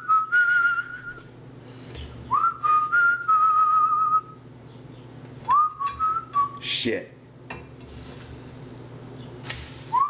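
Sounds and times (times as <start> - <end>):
man whistling a tune: 0.0 - 1.3, 2.3 - 4.4, 5.5 - 6.6.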